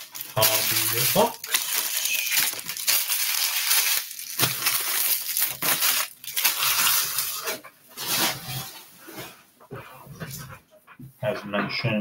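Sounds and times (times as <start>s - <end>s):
plastic wrappers crinkling: 0.0s - 8.7s.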